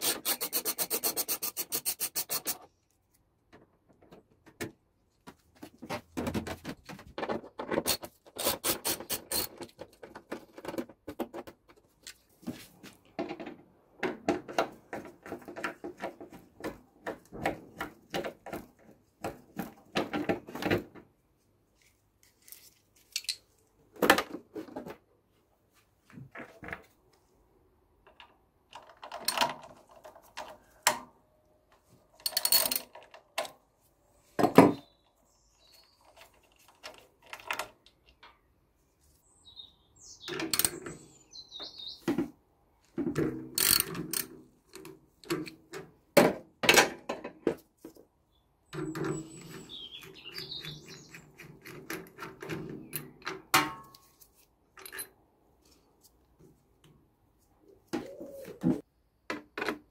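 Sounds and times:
screwdriver clicking and scraping: 0.0 - 3.2, 7.7 - 10.4, 43.6 - 45.6
plastic panels knocking and rattling: 3.4 - 8.4, 9.0 - 12.0, 13.1 - 21.1, 45.3 - 47.6.

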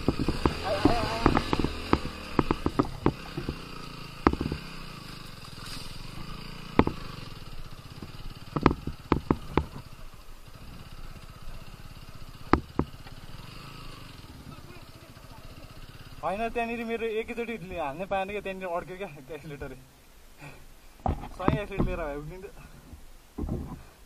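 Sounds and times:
motorcycle jolting knocks and rattles: 0.0 - 15.2, 21.0 - 24.0
motorcycle engine running: 0.0 - 17.7, 21.0 - 22.3.

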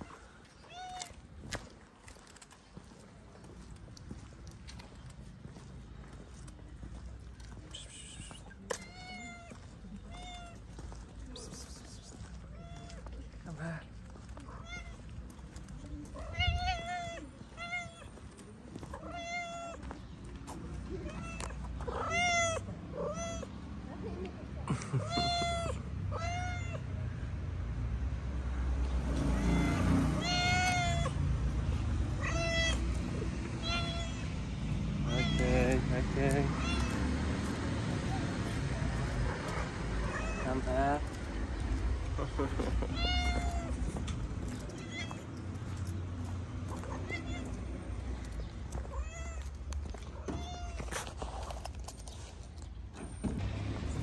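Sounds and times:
cat meowing: 0.6 - 1.2, 8.1 - 10.6, 12.5 - 13.1, 14.4 - 15.1, 16.1 - 18.2, 18.9 - 19.8, 21.0 - 23.5, 25.0 - 26.9, 29.4 - 31.2, 32.2 - 34.4, 35.0 - 35.5, 36.5 - 37.1, 40.0 - 40.5, 42.8 - 43.8, 44.6 - 45.4, 46.7 - 47.8, 48.9 - 50.8.

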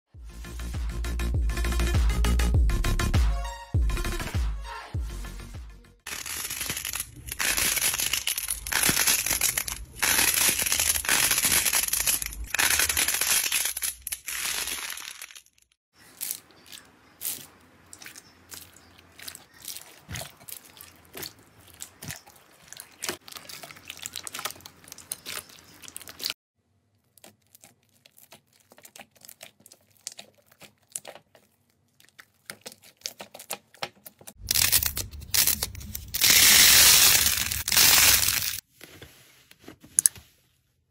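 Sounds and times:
slime crackling and squishing: 6.1 - 15.4, 16.0 - 26.4, 27.0 - 38.6.

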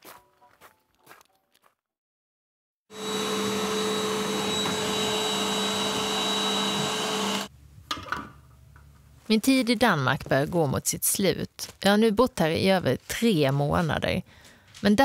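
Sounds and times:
vacuum cleaner running: 2.9 - 7.5.

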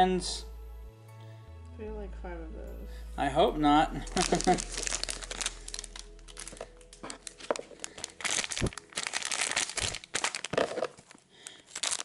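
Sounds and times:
plastic packet crinkling: 4.0 - 12.0.

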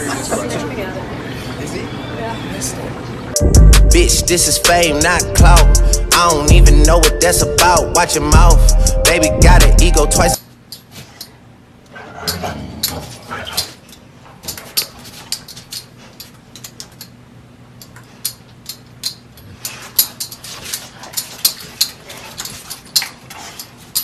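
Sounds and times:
dogs growling: 11.9 - 13.9, 19.4 - 24.0.

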